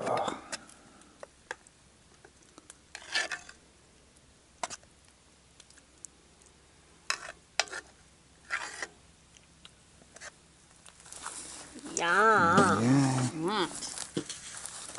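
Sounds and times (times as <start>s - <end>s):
metal ladle scraping pot: 2.9s - 3.6s, 7.1s - 9.0s.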